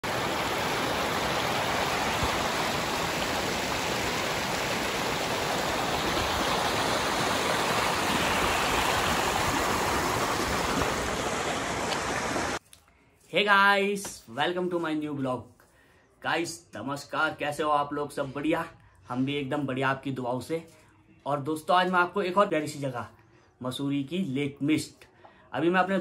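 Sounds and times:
waterfall roaring: 0:00.0 - 0:12.6.

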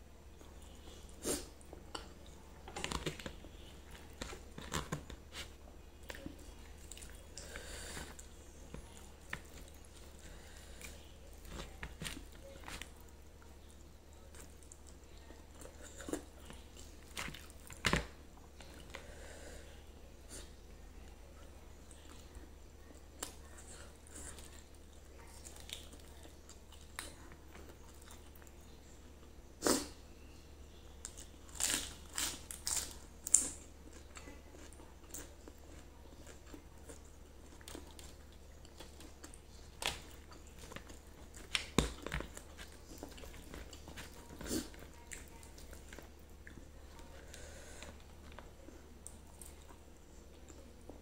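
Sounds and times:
faint low hum: 0:00.0 - 0:51.0
chewing food: 0:00.2 - 0:19.2, 0:20.3 - 0:29.9, 0:30.9 - 0:51.0.

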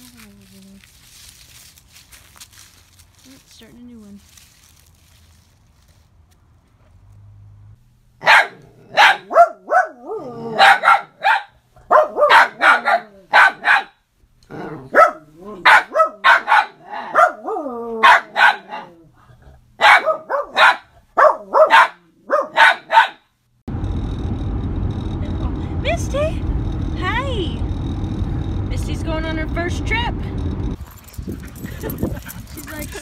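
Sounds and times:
car rumble: 0:04.2 - 0:08.2, 0:23.6 - 0:33.0
dogs barking: 0:08.2 - 0:14.0, 0:14.8 - 0:19.0, 0:19.8 - 0:23.3
dog growling: 0:14.4 - 0:15.7.

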